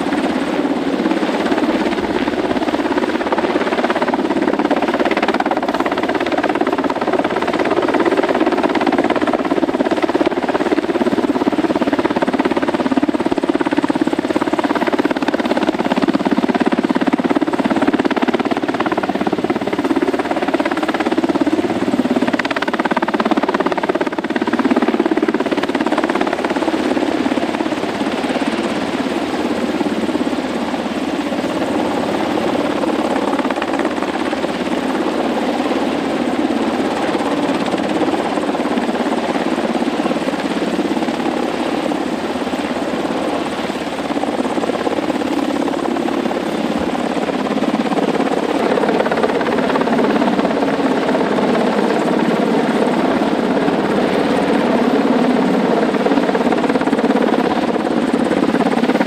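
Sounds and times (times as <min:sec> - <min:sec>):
helicopter hovering: 0:00.0 - 0:59.0.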